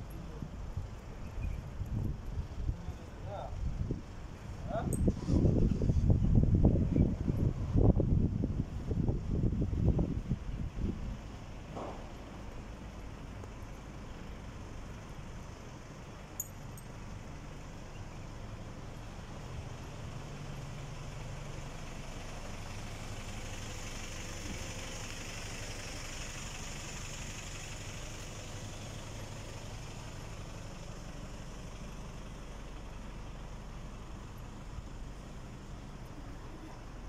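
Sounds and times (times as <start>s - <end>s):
vehicle engine running: 0.0s - 37.0s.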